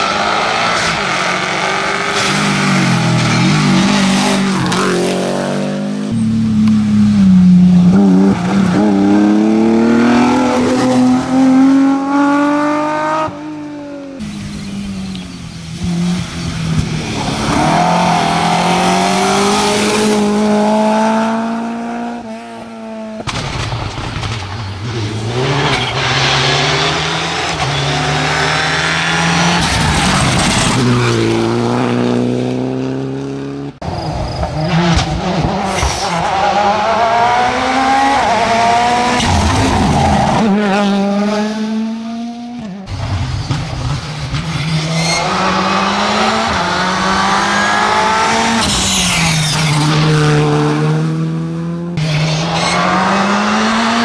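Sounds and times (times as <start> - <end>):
rally car engines revving: 0.0 - 54.0.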